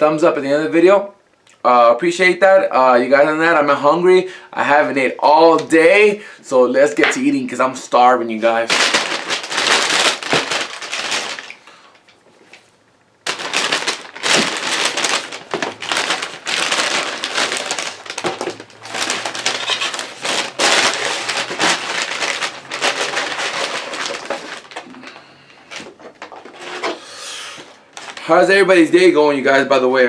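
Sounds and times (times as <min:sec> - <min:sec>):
paper bag crinkling: 0:08.5 - 0:12.6, 0:13.2 - 0:27.0, 0:27.6 - 0:28.5.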